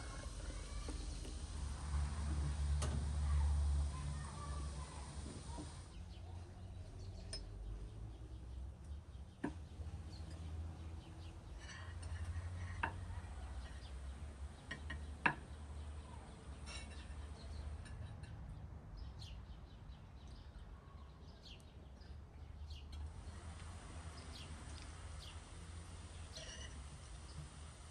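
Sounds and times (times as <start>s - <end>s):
tableware clinks: 26.4s - 26.8s.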